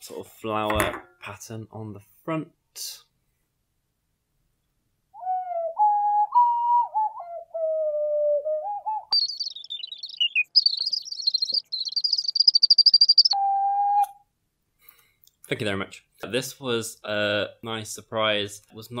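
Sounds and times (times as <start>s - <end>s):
ocarina playing: 11.6s - 14.2s.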